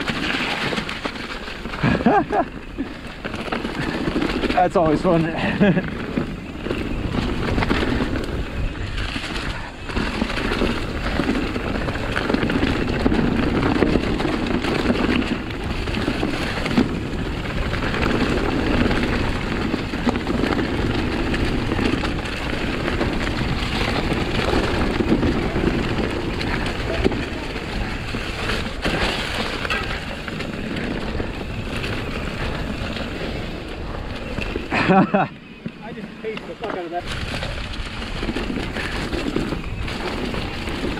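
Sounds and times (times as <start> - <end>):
bike knocking over bumps: 0.0 - 40.9
bike tyres rushing over leaves and dirt: 0.0 - 40.9.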